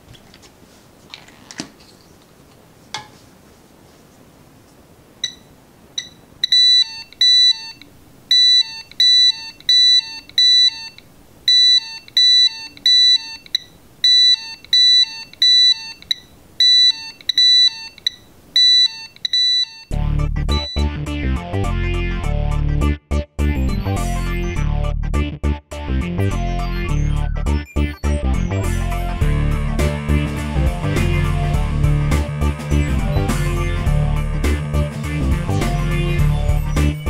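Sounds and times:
short electronic alarm beeps: 5.2 - 19.9, 20.5 - 20.8
electronic music with heavy bass: 20.0 - 37.0.

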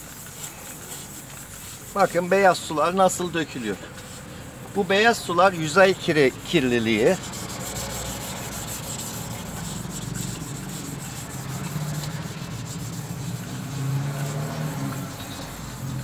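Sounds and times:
sandpaper rasping on plastic: 0.0 - 16.0.

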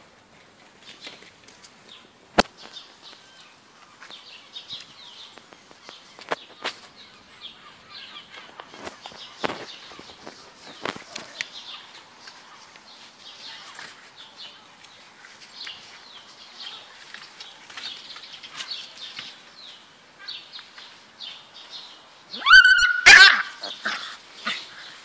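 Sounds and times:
puppies rustling and scuffling: 0.0 - 7.0, 8.3 - 19.6.

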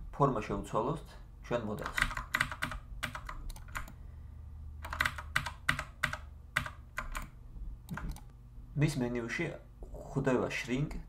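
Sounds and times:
low steady hum: 0.0 - 11.0
keyboard keys clicking: 1.8 - 4.0, 4.8 - 8.3.

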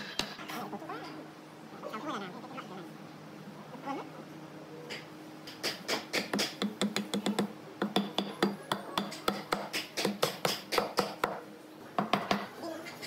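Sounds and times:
mallet tapping wood: 5.6 - 11.4.

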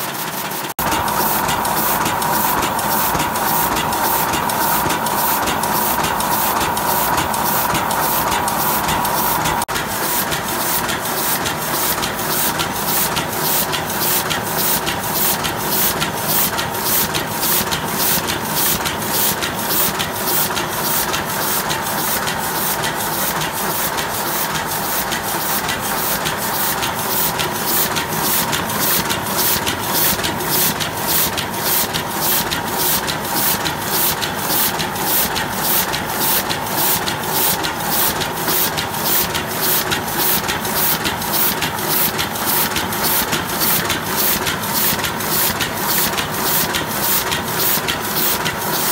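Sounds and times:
printing press running: 0.0 - 48.9
regular mechanical beat: 0.7 - 10.0, 22.5 - 48.9
steady hum: 0.8 - 9.7.

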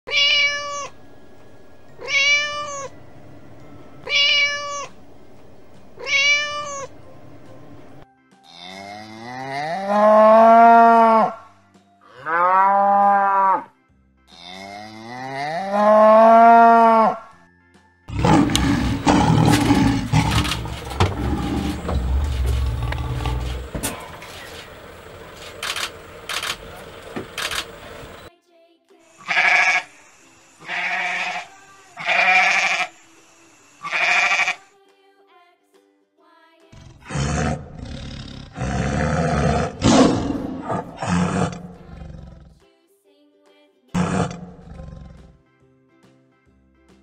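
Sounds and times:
cat meowing: 0.1 - 1.0, 2.0 - 3.0, 4.0 - 5.0, 6.0 - 6.9
cow mooing: 8.5 - 11.4, 12.1 - 13.7, 14.3 - 17.2, 18.1 - 25.6, 36.8 - 42.5, 44.0 - 45.3
lion growling: 18.1 - 28.3, 36.8 - 42.6, 44.0 - 45.3.

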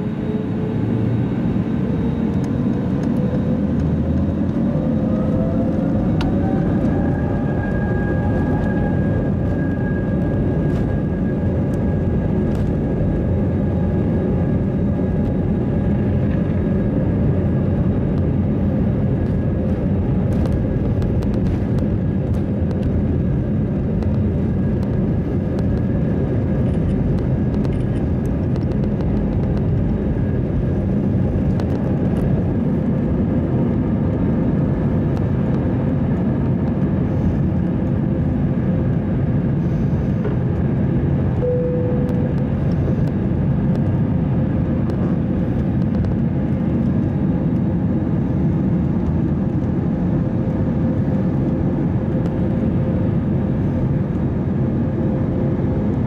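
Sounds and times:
aircraft rumble on runway: 0.0 - 56.0
jet engines whining: 0.0 - 56.0.

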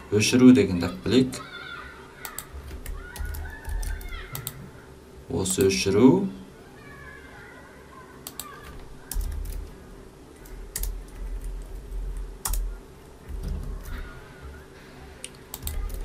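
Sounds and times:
typing on computer keyboard: 2.2 - 4.6, 8.3 - 9.7, 10.4 - 12.7, 15.5 - 16.0.

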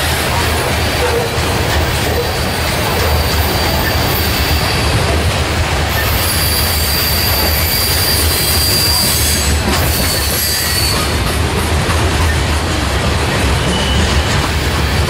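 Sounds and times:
steel wheels rumbling on rail: 0.0 - 15.0
high wheel squeal: 2.0 - 5.2, 5.9 - 11.3, 13.6 - 15.0.

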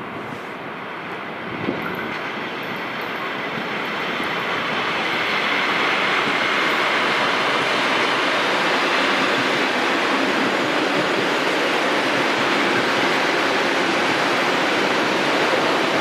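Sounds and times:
electric train running past: 0.0 - 16.0.

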